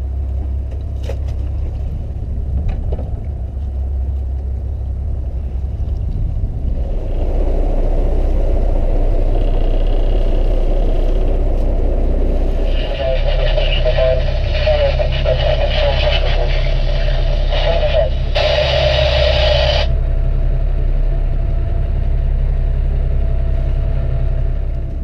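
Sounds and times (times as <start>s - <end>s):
boat engine rumbling: 0.0s - 25.0s.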